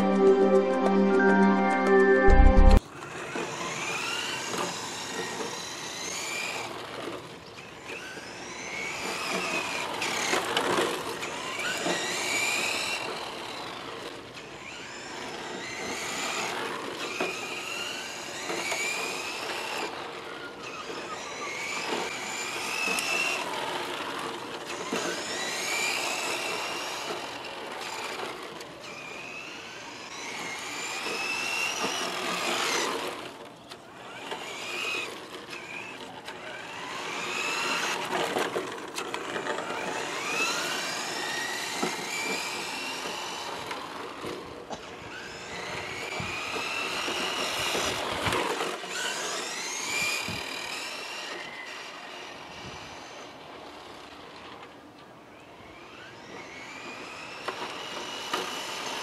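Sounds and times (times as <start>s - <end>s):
electric motor whining: 34.0s - 53.9s.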